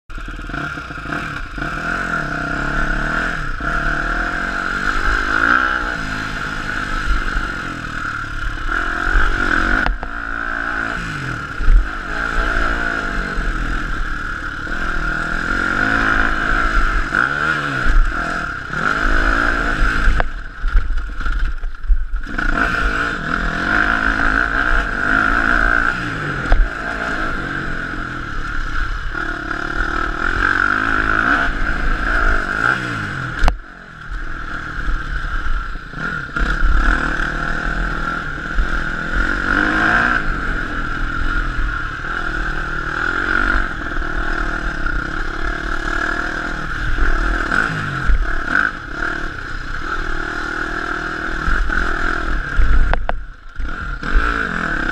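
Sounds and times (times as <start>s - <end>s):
motocross engine revving: 0.1s - 54.9s.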